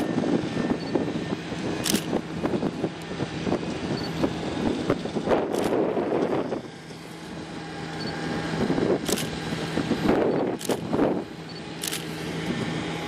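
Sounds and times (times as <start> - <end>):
diesel railcar engine humming: 0.0 - 13.0
wind buffeting microphone: 0.0 - 13.0.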